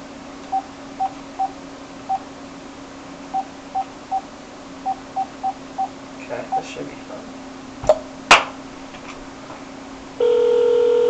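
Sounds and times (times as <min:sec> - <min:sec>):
mobile phone keypad beeps: 0:03.4 - 0:04.2.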